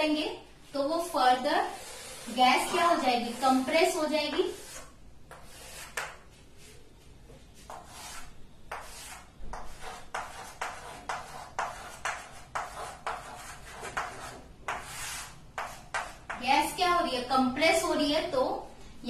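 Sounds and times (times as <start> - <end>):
chalk scraping a line: 1.6 - 6.8, 7.6 - 16.4
chalk tapping on blackboard: 1.8 - 6.4, 7.6 - 16.6.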